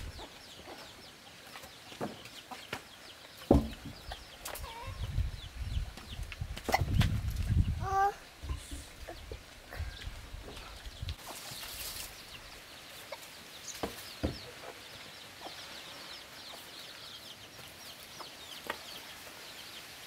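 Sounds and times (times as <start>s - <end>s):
chickens clucking: 0.0s - 7.7s, 8.4s - 19.1s
sharp knocks: 3.5s - 4.0s.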